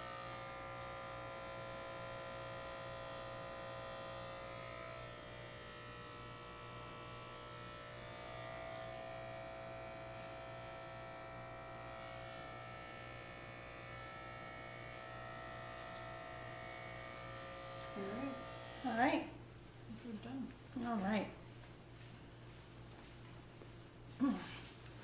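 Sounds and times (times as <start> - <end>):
electric hair clippers buzzing: 0.0 - 19.4.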